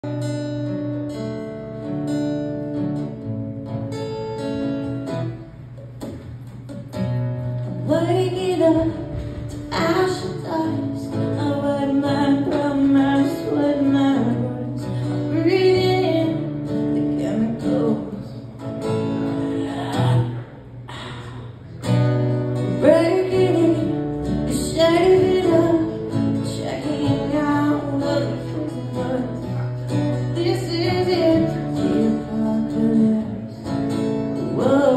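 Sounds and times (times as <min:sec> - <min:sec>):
acoustic guitar: 0:00.0 - 0:34.9
woman singing: 0:07.7 - 0:18.6, 0:19.2 - 0:21.6, 0:22.6 - 0:34.9.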